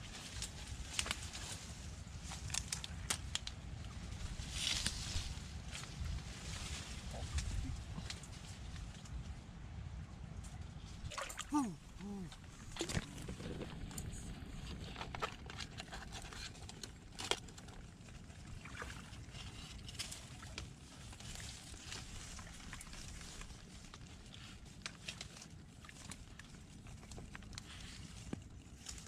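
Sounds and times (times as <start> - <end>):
mud squelching and scraping: 11.0 - 29.0.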